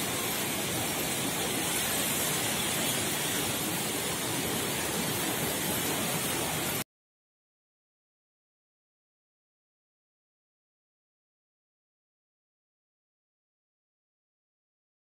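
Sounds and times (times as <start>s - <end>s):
stream water rushing: 0.0s - 6.8s.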